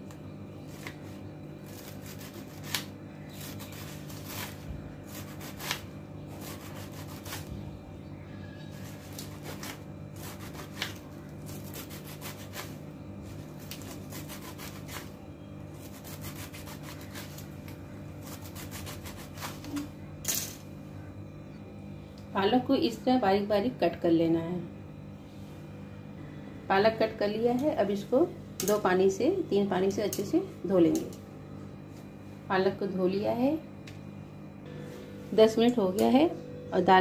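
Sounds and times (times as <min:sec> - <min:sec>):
knife slicing leaves on cutting board: 0:00.7 - 0:07.5, 0:08.8 - 0:12.8, 0:13.6 - 0:15.1, 0:15.8 - 0:17.5, 0:18.2 - 0:19.9.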